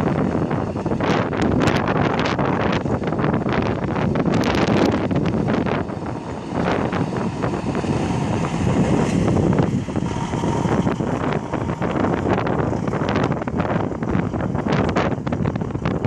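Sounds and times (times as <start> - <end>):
wind buffeting microphone: 0.0 - 16.0
truck driving past: 4.1 - 15.0.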